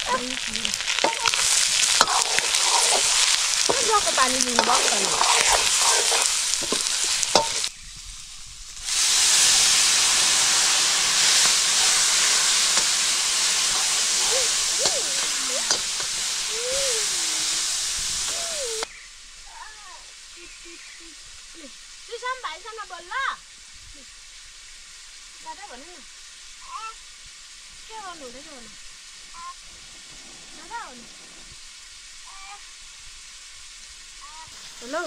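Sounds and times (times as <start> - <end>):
curry sizzling in a pan: 0.0 - 35.0.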